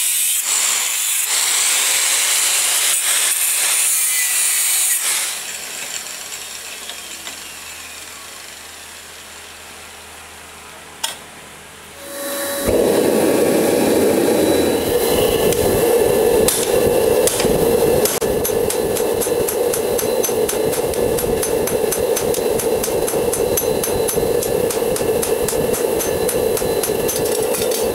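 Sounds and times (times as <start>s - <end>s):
angle grinder: 0.0s - 8.6s, 12.0s - 27.9s
gas torch flame roaring: 11.9s - 27.9s.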